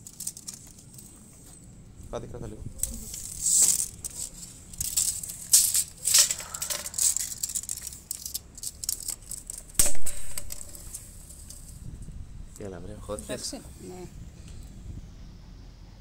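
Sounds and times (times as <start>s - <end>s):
tape measure rattling and clicking: 0.0s - 1.2s, 2.8s - 11.8s.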